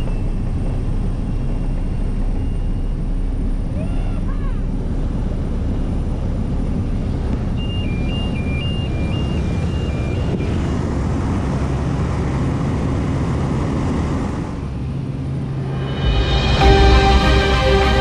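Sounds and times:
propeller plane engine running: 0.0s - 18.0s
two-tone alternating cockpit beep: 7.6s - 10.7s.

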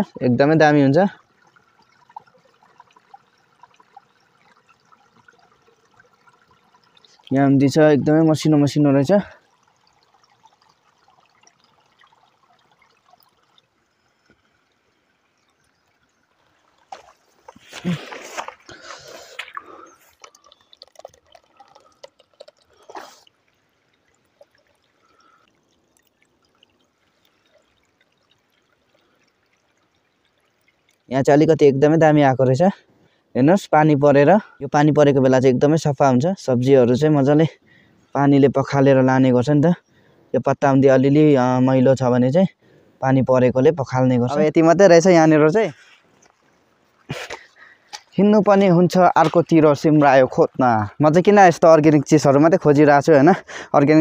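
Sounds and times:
faint trickling water: 0.0s - 54.0s
wet leaves rustling and clicking: 16.8s - 20.6s.

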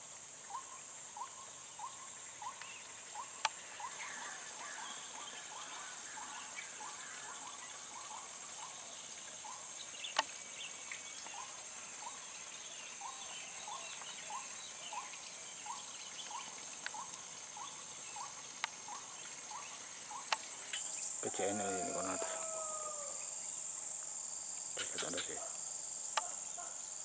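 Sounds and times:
high-pitched insect drone: 13.6s - 27.0s
short rising animal call: 21.3s - 23.2s.

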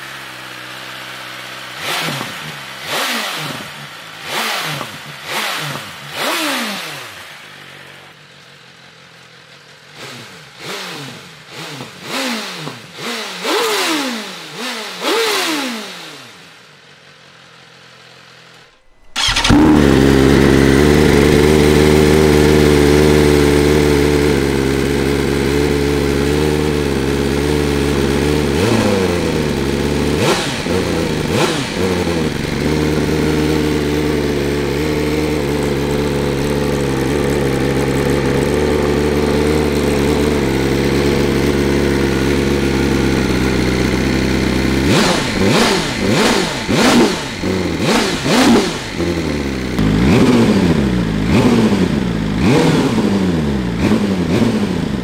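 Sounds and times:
motorcycle engine idling: 0.0s - 55.0s
motorcycle throttle blips and revs: 0.0s - 55.0s.

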